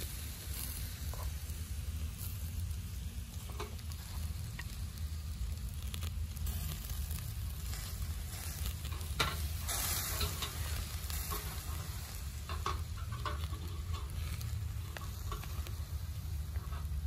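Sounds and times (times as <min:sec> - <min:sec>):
meat sizzling on a grill: 0:00.0 - 0:17.0
metal skewers clicking on grate: 0:03.3 - 0:04.8, 0:05.6 - 0:17.0.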